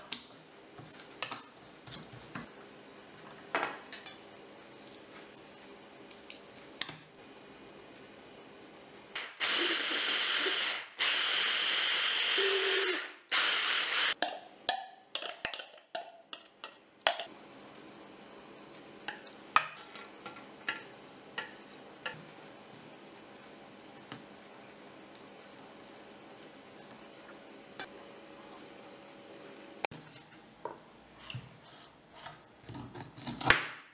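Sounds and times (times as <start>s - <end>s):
electric blender running: 9.2s - 14.2s
utensils tapping steel bowl: 14.2s - 17.3s.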